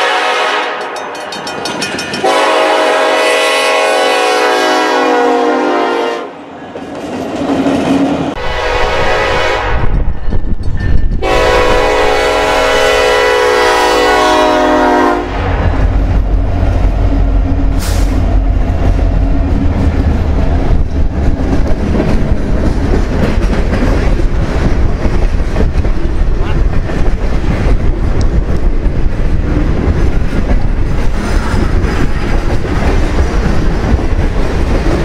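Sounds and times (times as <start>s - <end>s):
locomotive air horn blast: 0.0s - 1.0s, 2.2s - 6.4s, 8.4s - 9.9s, 11.2s - 15.5s, 17.7s - 18.3s
freight car wheels rattling on rail: 0.8s - 2.8s, 9.8s - 13.0s, 15.4s - 35.0s.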